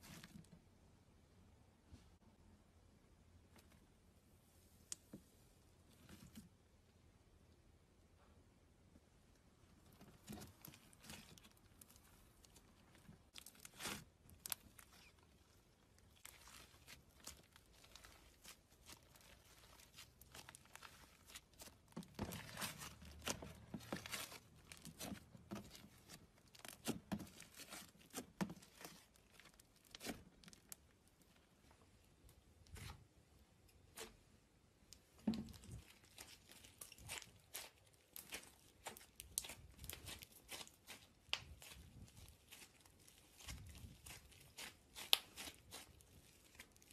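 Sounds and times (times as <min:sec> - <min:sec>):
slime crackling and tearing: 0:09.9 - 0:31.5, 0:35.5 - 0:46.9.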